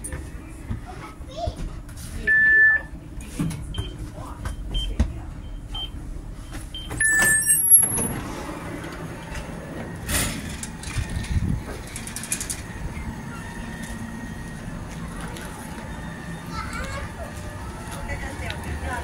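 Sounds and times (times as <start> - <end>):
train door warning beeps: 2.2 - 2.9, 3.7 - 8.2
door mechanism with high tones: 6.9 - 8.2.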